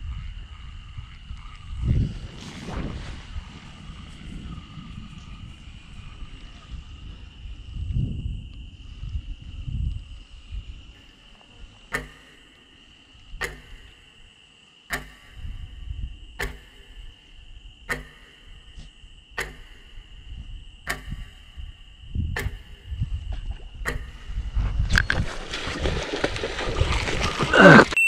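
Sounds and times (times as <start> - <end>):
low rumble: 0.0 - 11.0
high insect whine: 0.0 - 28.0
clock-like tick: 11.9 - 12.8, 13.4 - 14.2, 14.9 - 18.8, 19.4 - 20.2, 20.8 - 21.8, 22.4 - 22.9, 23.9 - 24.4.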